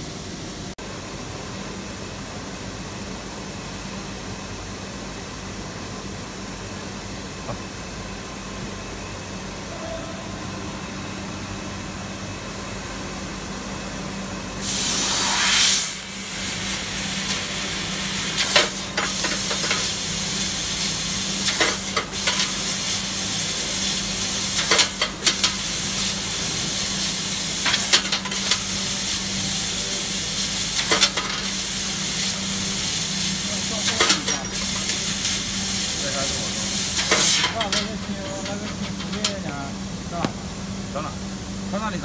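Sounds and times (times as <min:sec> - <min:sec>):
steady machine hum: 0:00.0 - 0:42.0
loud hiss blast with whoosh: 0:14.6 - 0:28.0, 0:30.0 - 0:37.6
laser cutting hiss with crackles: 0:14.6 - 0:38.5.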